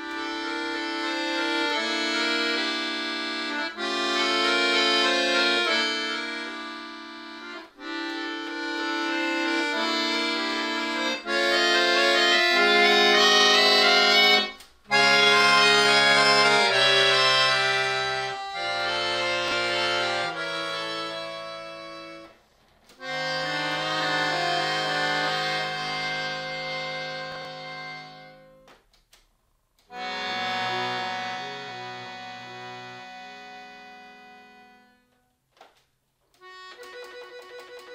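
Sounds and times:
accordion chords: 0:00.0 - 0:35.5, 0:36.2 - 0:37.9.

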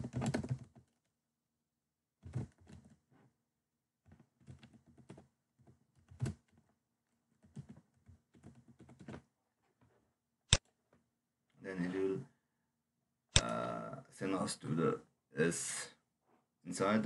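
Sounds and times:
computer keyboard typing: 0:00.0 - 0:01.0, 0:04.1 - 0:06.7, 0:07.3 - 0:09.2.

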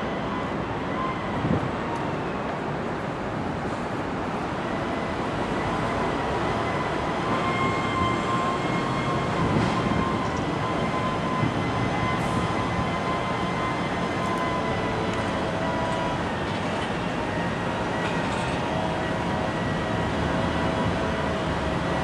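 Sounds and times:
train rumble: 0:00.0 - 0:22.0.

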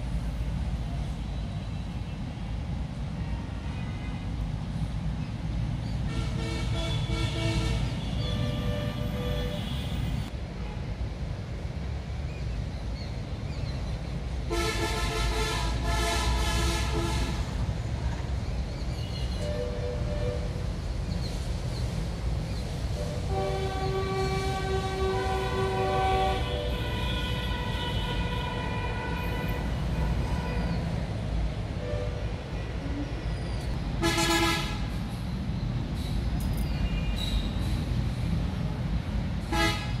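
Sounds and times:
low rumble of traffic: 0:00.0 - 0:40.0
vehicle horn tooting: 0:06.1 - 0:10.1, 0:34.0 - 0:34.8, 0:39.5 - 0:40.0
two-tone vehicle horn: 0:06.1 - 0:10.2, 0:14.5 - 0:17.5, 0:23.1 - 0:30.8, 0:34.0 - 0:34.9, 0:39.5 - 0:40.0.

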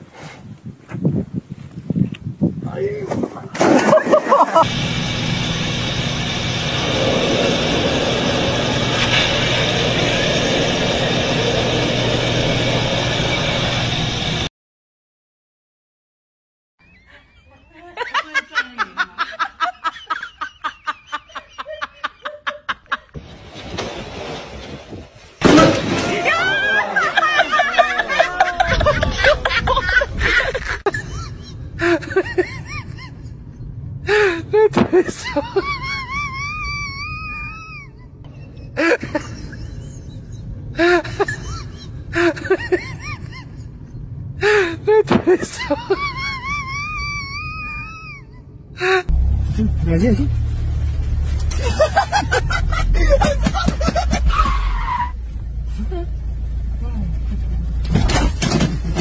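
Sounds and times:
person laughing hard: 0:03.8 - 0:04.7, 0:17.1 - 0:23.2, 0:26.2 - 0:33.4, 0:34.1 - 0:43.8, 0:44.4 - 0:49.1, 0:51.5 - 0:54.7
steady rushing noise: 0:04.6 - 0:14.5.

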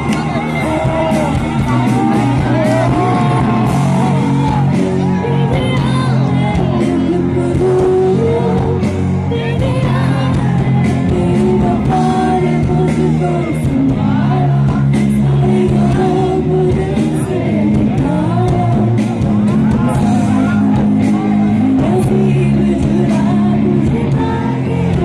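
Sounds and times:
live band playing: 0:00.0 - 0:25.0
woman singing: 0:00.0 - 0:25.0.

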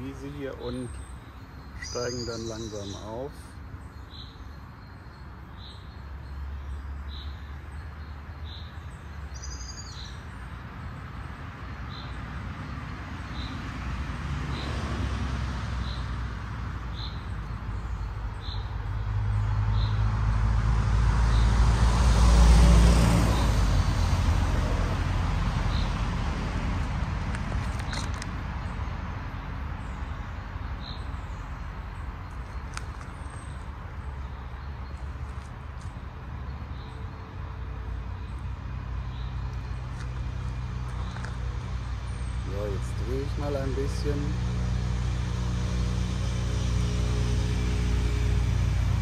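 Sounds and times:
bird chirping: 0:00.0 - 0:11.0, 0:27.4 - 0:44.2
vehicle rumble passing: 0:05.4 - 0:49.0.

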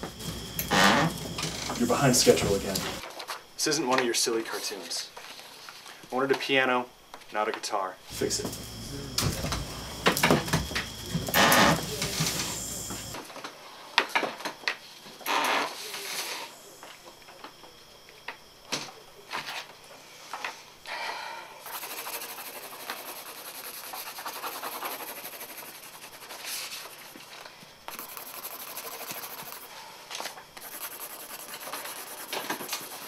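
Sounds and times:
pen scratching on paper: 0:21.7 - 0:27.2, 0:27.9 - 0:29.7, 0:30.6 - 0:33.0.

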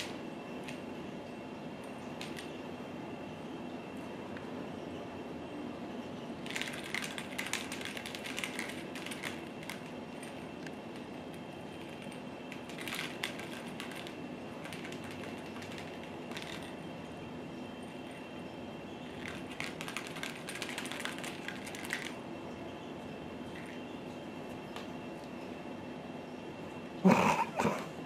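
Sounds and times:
low background hum: 0:00.0 - 0:28.0
rapid clicking and rustling: 0:02.2 - 0:02.6, 0:06.4 - 0:16.9, 0:19.0 - 0:22.2.

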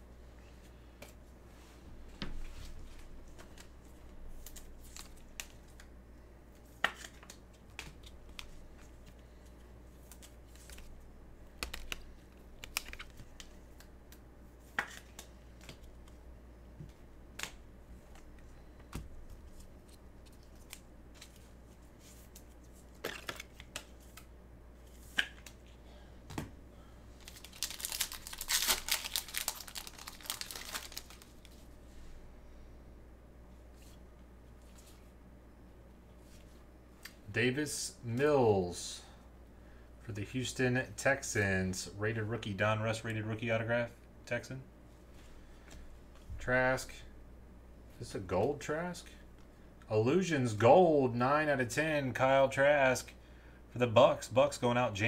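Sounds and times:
low steady hum: 0:00.0 - 0:55.0
cards clicking and snapping: 0:06.8 - 0:09.2, 0:11.6 - 0:16.2
wrapper crinkling and tearing: 0:27.2 - 0:31.5.

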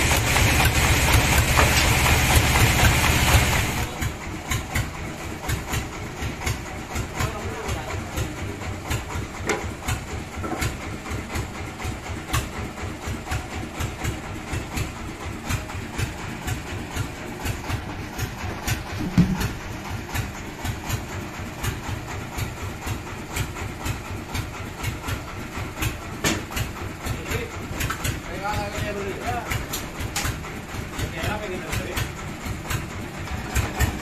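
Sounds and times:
bandsaw machinery chugging: 0:00.0 - 0:34.0
heavy thump: 0:18.9 - 0:19.6.

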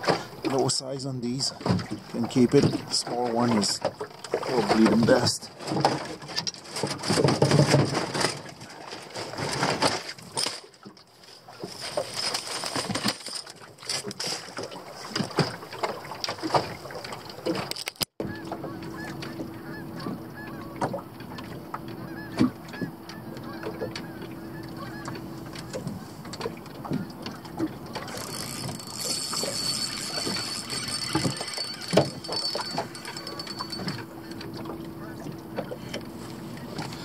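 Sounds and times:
fishing tackle clicks and knocks: 0:11.9 - 0:19.6, 0:20.8 - 0:36.1.

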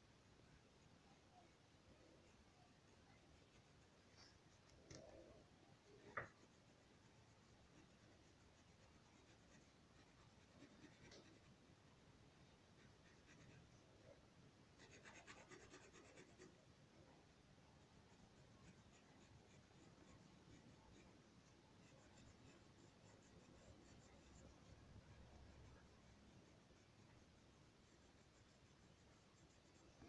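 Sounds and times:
pencil scratching on paper: 0:02.2 - 0:04.7, 0:05.8 - 0:11.5, 0:12.7 - 0:13.8, 0:14.8 - 0:16.6, 0:18.0 - 0:30.0.

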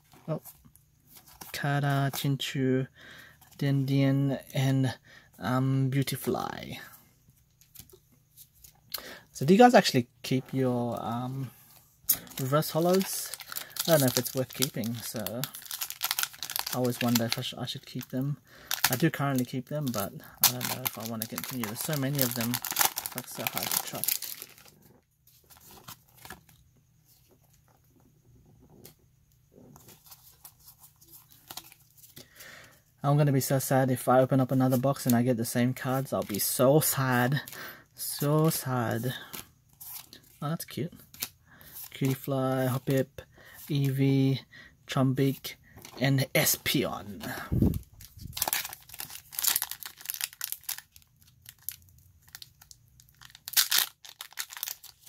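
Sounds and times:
trading cards rustling and clicking: 0:12.1 - 0:24.7, 0:25.3 - 0:27.8, 0:29.7 - 0:32.3, 0:52.4 - 0:55.0
foil wrapper crinkling: 0:12.1 - 0:24.8, 0:46.7 - 0:55.0
cards being handled: 0:18.8 - 0:24.7, 0:25.3 - 0:27.8, 0:41.0 - 0:42.8.

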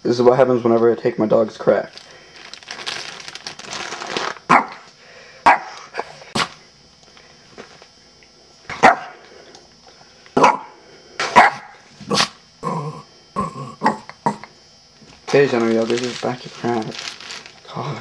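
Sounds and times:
small dog barking: 0:04.5 - 0:04.8, 0:05.4 - 0:05.8, 0:08.8 - 0:09.2, 0:10.4 - 0:10.7, 0:11.3 - 0:11.8
rustling: 0:15.2 - 0:17.7.

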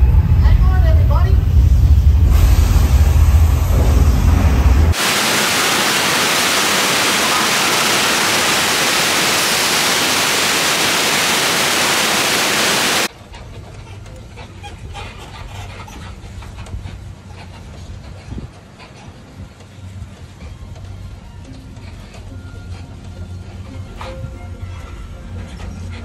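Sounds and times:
torrent of water rushing: 0:04.9 - 0:13.1.

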